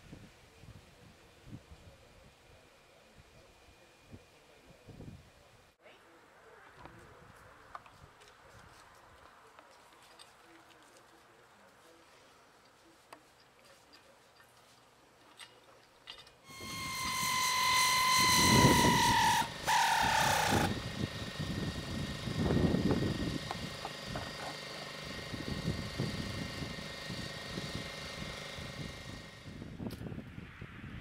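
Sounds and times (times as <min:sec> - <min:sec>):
high mechanical whine: 0:16.4 - 0:29.9.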